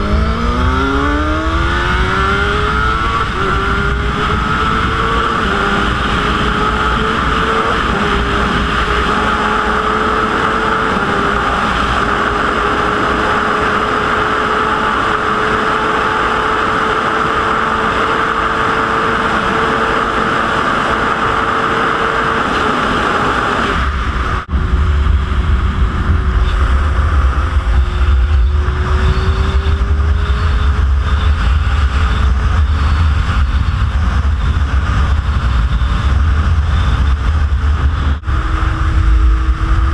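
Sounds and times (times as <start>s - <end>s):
motorcycle engine running: 0.0s - 39.9s
wind rush: 0.0s - 39.9s
wind buffeting on microphone: 19.2s - 39.9s.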